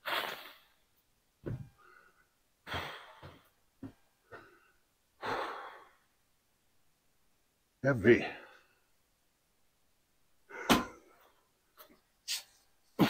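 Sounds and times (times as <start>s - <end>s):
man breathing hard: 4.3s - 6.0s.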